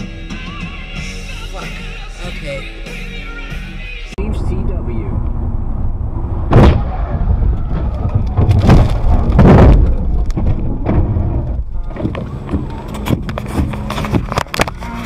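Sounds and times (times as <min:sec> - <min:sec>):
heavy thumps: 0:04.4 - 0:14.8
car crash bang: 0:05.2 - 0:12.1
car rumbling over rough grass: 0:05.2 - 0:15.0.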